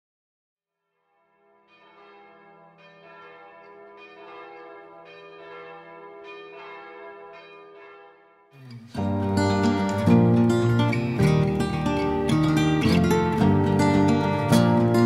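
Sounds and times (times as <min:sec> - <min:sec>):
church bell ringing: 0:01.2 - 0:15.0
acoustic guitar strumming: 0:08.6 - 0:15.0.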